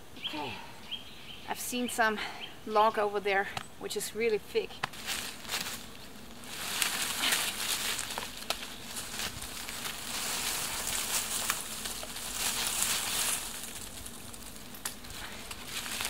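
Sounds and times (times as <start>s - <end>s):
twigs snapping: 4.8s - 16.0s
log dragged through dry leaves: 4.9s - 16.0s.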